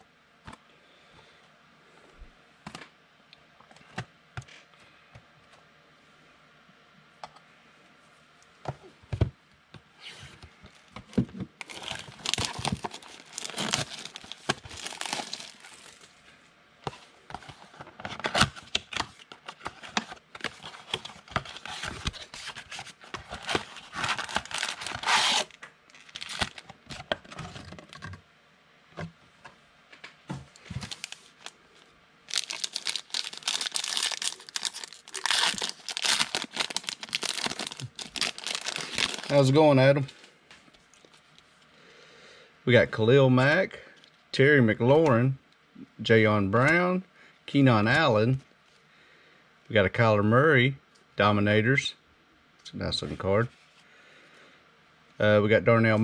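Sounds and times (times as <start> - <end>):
cardboard packaging tearing: 11.6 - 16.0, 18.1 - 26.7, 30.7 - 31.5, 32.3 - 39.6
foil crinkling: 11.6 - 16.1, 18.1 - 26.8, 30.6 - 31.6, 32.3 - 40.2.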